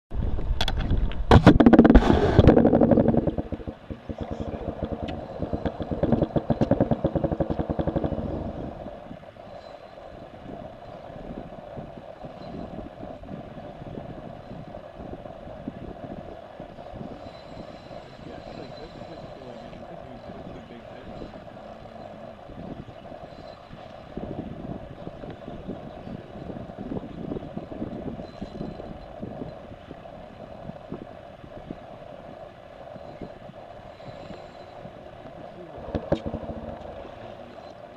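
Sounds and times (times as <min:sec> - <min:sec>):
wind buffeting microphone: 0:00.1 - 0:37.9
steady hum: 0:00.2 - 0:37.9
fishing reels ticking: 0:02.5 - 0:37.9.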